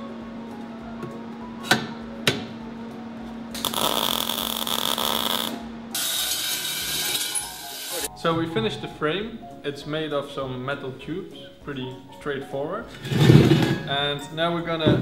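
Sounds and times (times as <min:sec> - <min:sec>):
arc welding crackling hiss: 0:03.6 - 0:08.1.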